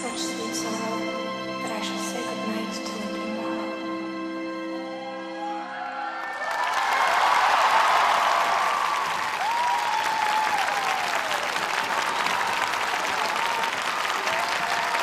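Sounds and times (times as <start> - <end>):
crowd cheering and calling out: 4.8 - 15.0
crowd clapping: 6.2 - 15.0.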